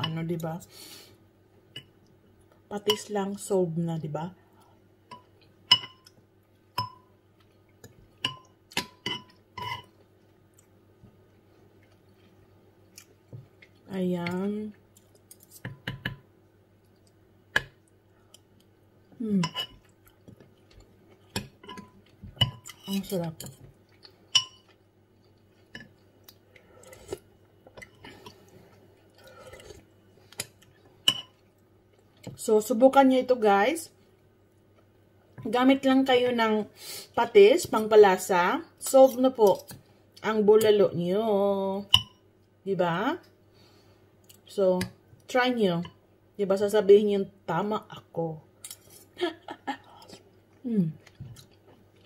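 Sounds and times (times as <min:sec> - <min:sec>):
person chewing: 0:23.8 - 0:32.2, 0:49.8 - 0:52.0.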